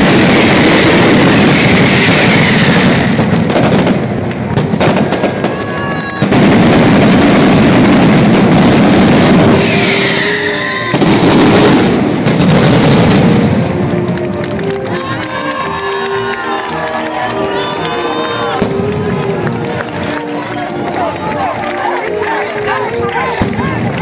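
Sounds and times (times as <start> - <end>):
firecrackers banging: 0.0 - 24.0
band music: 13.2 - 24.0.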